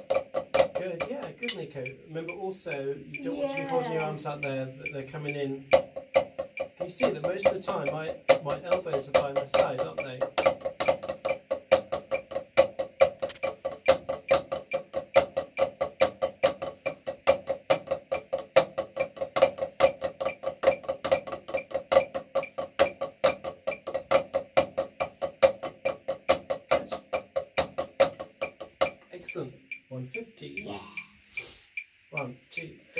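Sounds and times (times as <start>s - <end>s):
drumsticks tapping on practice pad: 0.0s - 30.3s.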